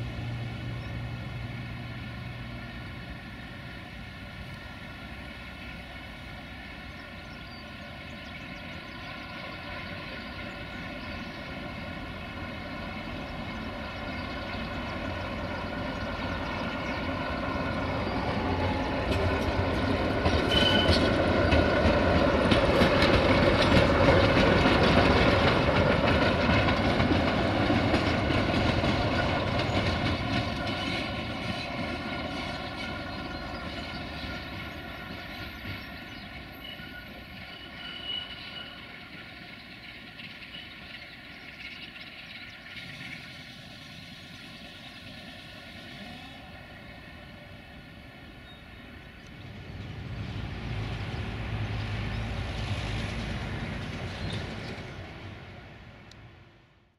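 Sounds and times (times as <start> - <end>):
diesel locomotive passing: 0.0 - 56.9.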